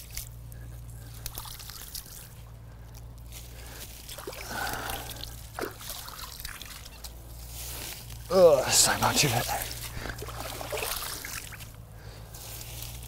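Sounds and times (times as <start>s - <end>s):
water sloshing: 0.0s - 2.6s, 3.6s - 8.0s, 8.7s - 11.9s
water dripping and trickling: 1.0s - 2.4s, 4.0s - 7.3s, 9.4s - 11.8s.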